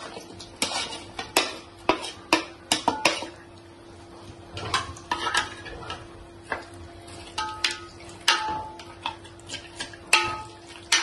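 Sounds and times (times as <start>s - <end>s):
spoon knocking and scraping on pot: 0.6s - 3.4s, 4.6s - 6.6s, 7.4s - 11.0s.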